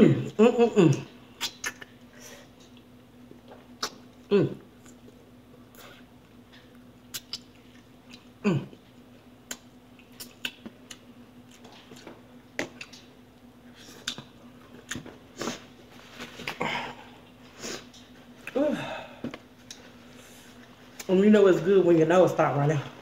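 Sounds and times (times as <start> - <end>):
faint steady hum: 0.0 - 23.0
chewing and mouth smacks: 2.6 - 15.6, 19.4 - 21.1
person humming mm: 3.8 - 4.7, 8.4 - 8.8.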